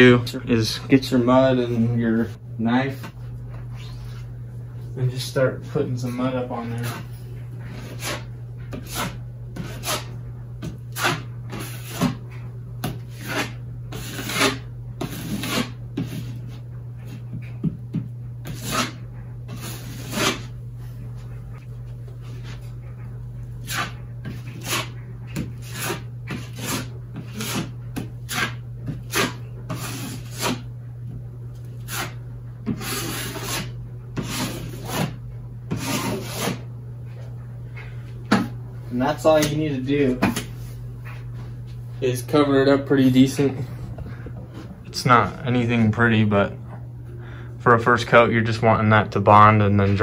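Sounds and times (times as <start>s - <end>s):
drywall knife scraping: 6.0s - 7.1s, 7.7s - 12.2s, 12.8s - 17.3s, 17.9s - 20.6s, 23.6s - 30.7s, 31.8s - 36.7s.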